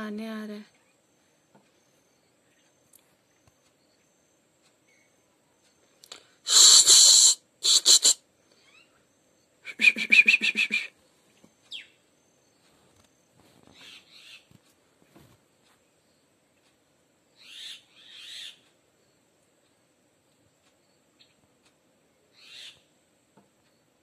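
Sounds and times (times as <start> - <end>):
rapid pulsed animal call: 6.5 - 11.0.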